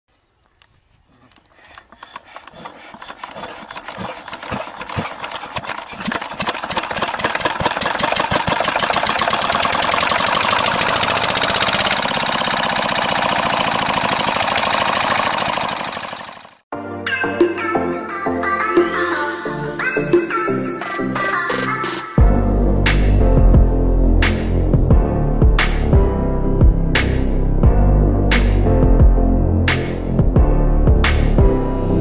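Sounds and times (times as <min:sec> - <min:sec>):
model engine mechanical knocking: 0:01.5 - 0:16.6.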